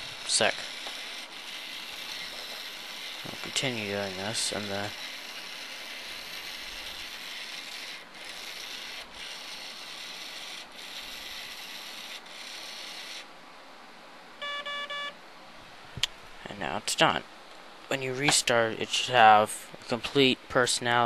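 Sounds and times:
toy motor and gears grinding: 0.0 - 13.3
short electronic beeps: 14.4 - 15.2.

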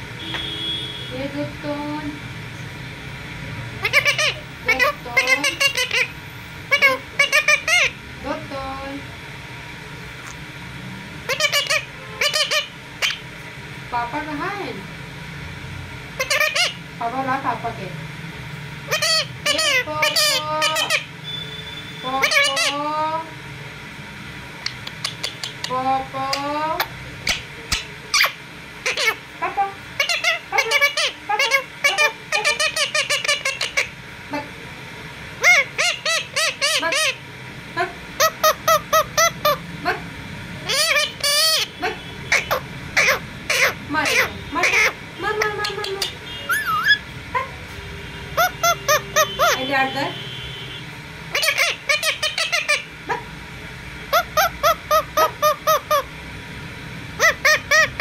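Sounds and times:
parakeet squawking: 3.8 - 8.0, 10.2 - 10.4, 11.2 - 13.3, 16.2 - 17.2, 18.8 - 21.4, 22.0 - 22.9, 24.6 - 29.3, 30.0 - 34.0, 35.4 - 37.3, 38.2 - 39.7, 40.6 - 47.1, 48.3 - 50.0, 51.3 - 53.2, 54.1 - 56.2, 57.2 - 58.0.

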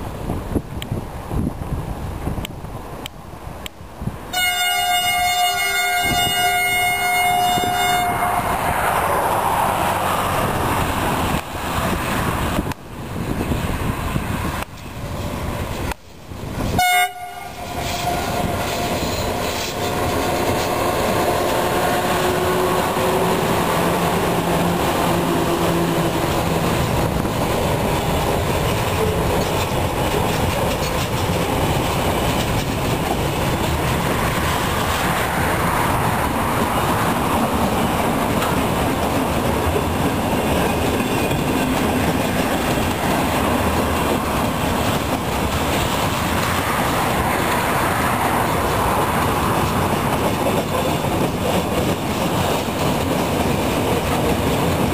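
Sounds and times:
train horn blast: 4.3 - 8.6, 16.8 - 20.7, 21.6 - 23.4
wagons clattering over rails: 17.5 - 21.7, 26.1 - 35.0, 37.8 - 47.2.

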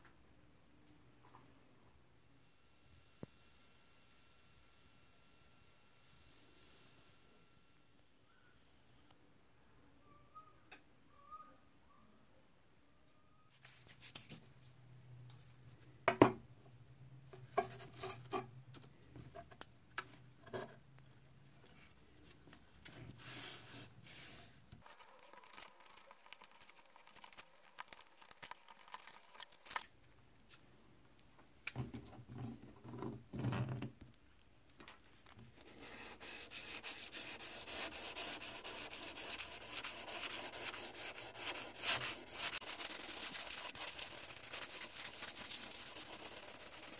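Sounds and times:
sandpaper sanding metal blade: 35.8 - 46.9.

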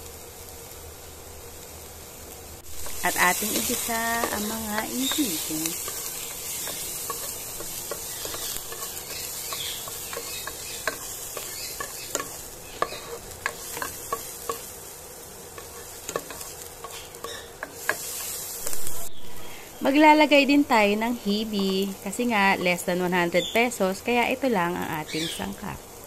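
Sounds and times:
vegetables sizzling in hot oil: 0.0 - 26.0
spatula scraping pan bottom: 2.8 - 14.8.

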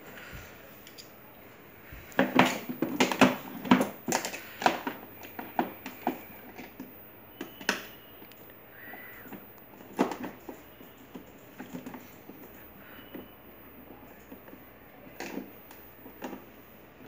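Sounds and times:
hard plastic clicking and knocking: 2.1 - 7.9.

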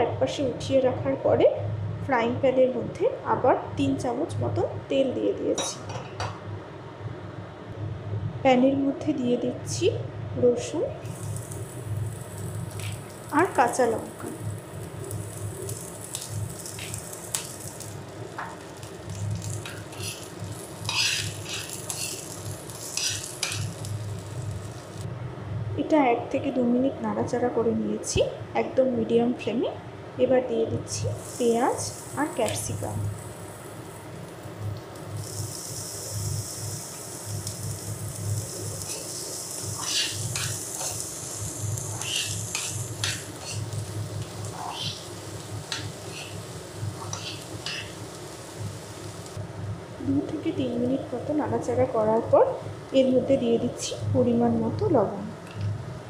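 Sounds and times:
garlic sizzling in hot oil: 10.6 - 25.1, 30.8 - 54.8
steel spoon scraping a pan: 19.6 - 23.8, 38.8 - 41.1, 41.8 - 43.8, 44.5 - 45.1, 45.7 - 46.4, 47.0 - 48.0.

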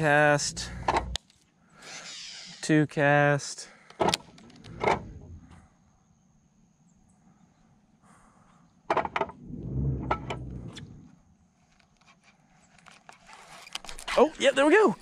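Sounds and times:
handling noise rumble: 4.1 - 5.7, 9.1 - 11.2.

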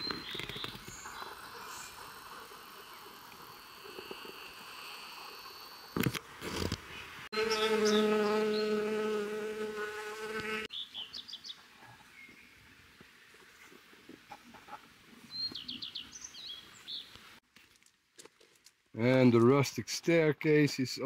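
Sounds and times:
bee buzzing: 7.4 - 10.7.

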